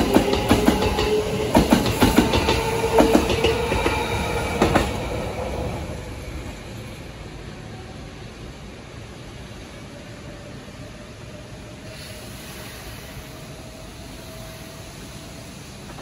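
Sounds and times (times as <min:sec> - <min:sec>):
train wheels clacking over rail joints: 0:00.0 - 0:05.4
train rumble with steady tone: 0:00.0 - 0:16.0.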